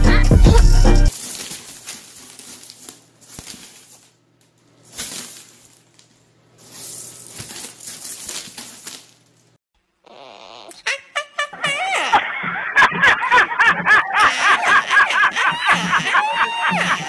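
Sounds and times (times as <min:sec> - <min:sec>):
dry pasta rattling and rustling: 0:01.1 - 0:09.6.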